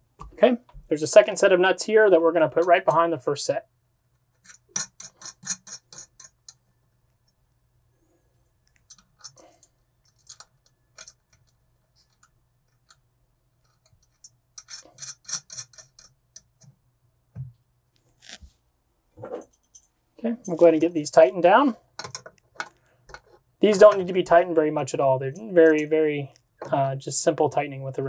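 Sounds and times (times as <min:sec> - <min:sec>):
metal nuts clicking on bracket: 0:04.4 - 0:06.6.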